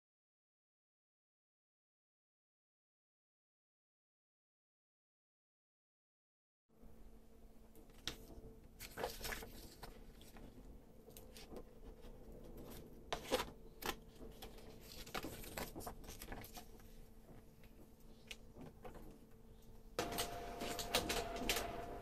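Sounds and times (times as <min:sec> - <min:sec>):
paper clicks and rustles: 0:07.8 - 0:19.3, 0:20.0 - 0:21.9
printer motor whine: 0:20.0 - 0:22.0.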